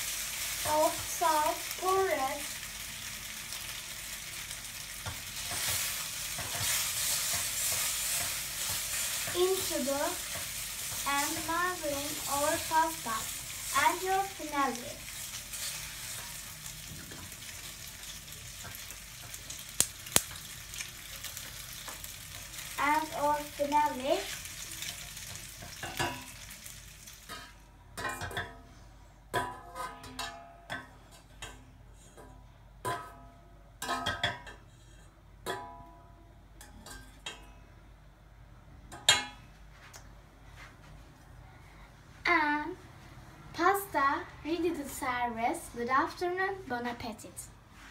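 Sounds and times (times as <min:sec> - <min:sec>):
pasta sizzling in a saucepan: 0:00.0 - 0:27.6
spoon stirring in a pan: 0:05.0 - 0:22.8
spoon tapping a pan: 0:35.4 - 0:36.0.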